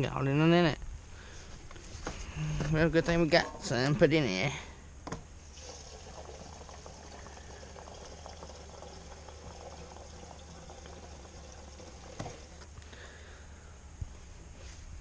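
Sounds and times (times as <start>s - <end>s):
fuel pouring into a tank: 5.4s - 12.7s.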